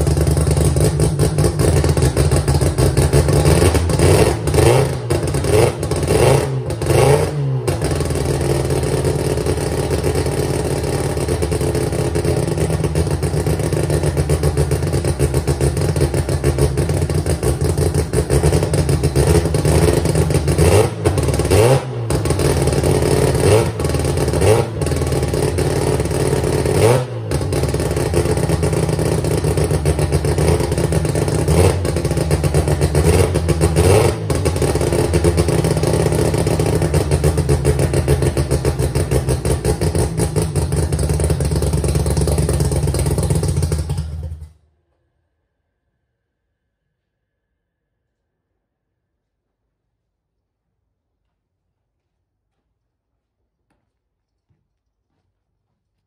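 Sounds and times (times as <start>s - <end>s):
rotary engine idling and revving: 0.0s - 44.4s.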